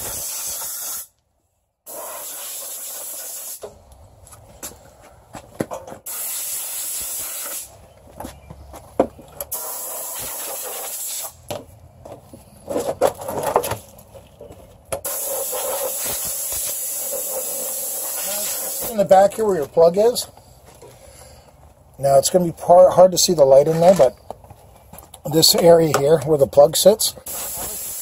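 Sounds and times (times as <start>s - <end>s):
compressed air blow gun hissing: 0.0s - 1.1s, 1.9s - 3.7s, 6.1s - 7.7s, 9.5s - 11.4s, 15.1s - 19.0s, 27.2s - 28.0s.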